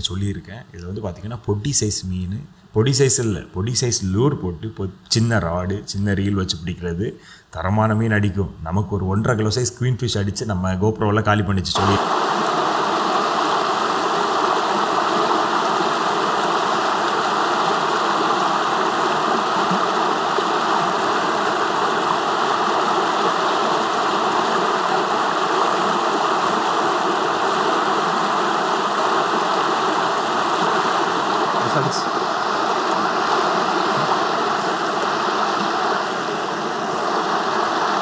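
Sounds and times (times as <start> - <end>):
fast-flowing stream rushing: 11.8 - 38.0.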